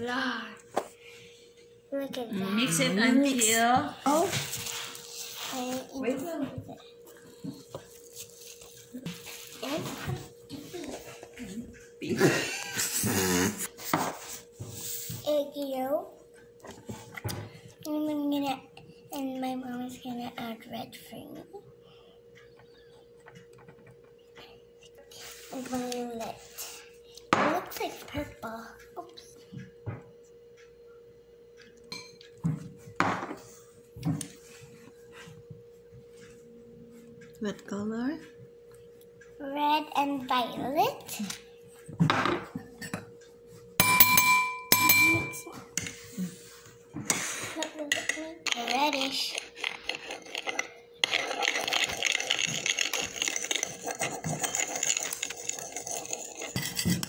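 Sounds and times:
steady hum: 0:00.0 - 0:57.0
spoon clinking and scraping on china: 0:48.6 - 0:57.0.

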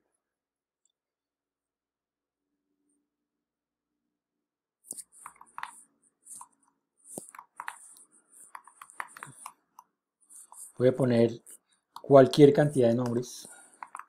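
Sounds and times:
keyboard keystroke clicks: 0:13.8 - 0:14.0.

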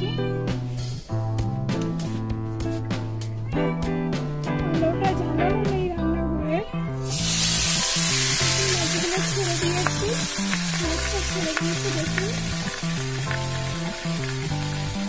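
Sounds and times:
fish sizzling in hot oil: 0:07.0 - 0:15.0.

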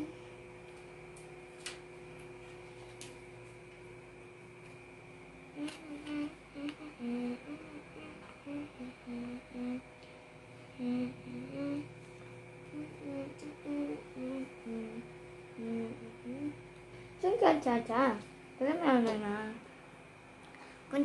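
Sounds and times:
woman humming: 0:00.0 - 0:00.3, 0:05.5 - 0:16.7.

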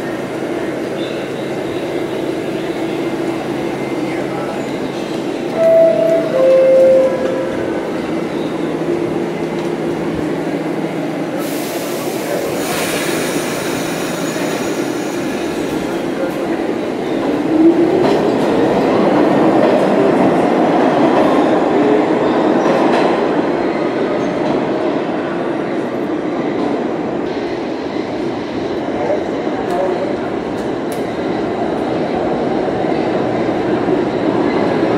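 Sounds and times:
train wheels rumbling on rail: 0:00.0 - 0:34.9
train hiss: 0:11.3 - 0:15.9.

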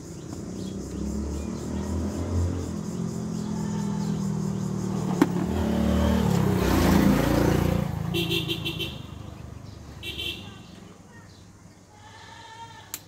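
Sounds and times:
vehicle engine running: 0:00.0 - 0:10.8.

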